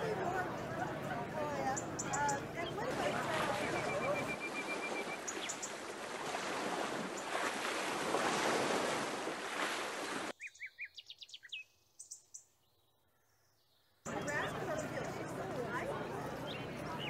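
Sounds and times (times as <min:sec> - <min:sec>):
surf waves: 0:02.4 - 0:10.3
bird chirps: 0:03.6 - 0:05.8, 0:10.4 - 0:15.2.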